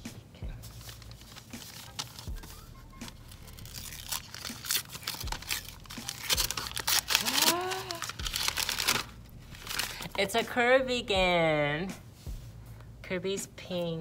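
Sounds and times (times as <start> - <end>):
paper wrapping tearing and crinkling: 0.6 - 10.2
person saying ooh: 7.2 - 8.1.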